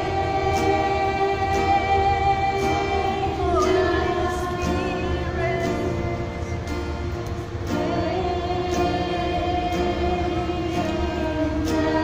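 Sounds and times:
acoustic guitar: 0:00.0 - 0:12.0
women singing worship song: 0:00.0 - 0:12.0.

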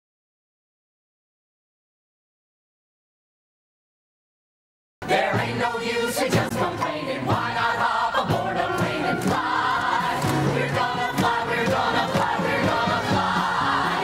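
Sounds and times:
driving percussion beat: 0:05.0 - 0:14.0
ensemble singing together: 0:05.0 - 0:14.0.

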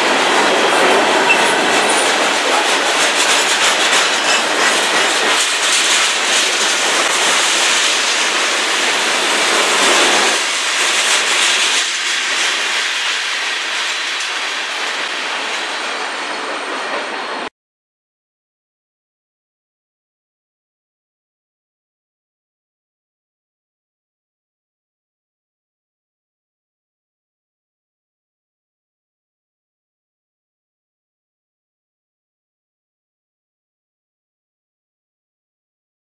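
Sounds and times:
train wheels clattering over rail joints: 0:00.0 - 0:17.4.

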